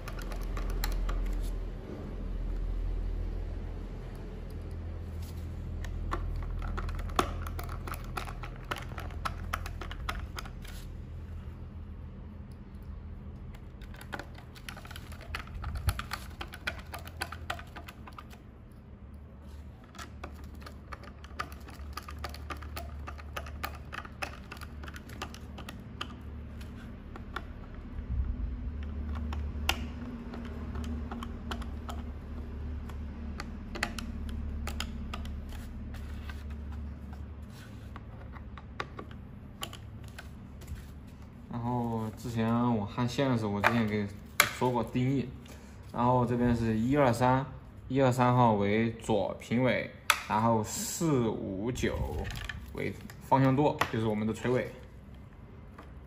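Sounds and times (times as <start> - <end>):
screwdriver clicking on plastic: 0.0 - 1.6, 5.8 - 10.8, 12.5 - 18.4, 19.8 - 27.9, 28.8 - 36.8
steady low hum: 0.0 - 56.0.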